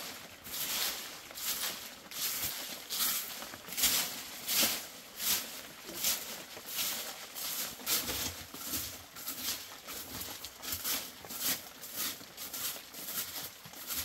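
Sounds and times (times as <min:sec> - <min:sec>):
straw broom sweeping dirt: 0:00.0 - 0:14.0.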